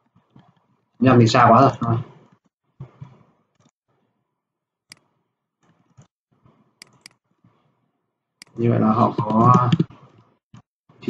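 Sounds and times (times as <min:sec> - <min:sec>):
mouse clicks: 0:06.8 - 0:07.2
faint keyboard typing: 0:06.8 - 0:07.6, 0:08.4 - 0:10.3.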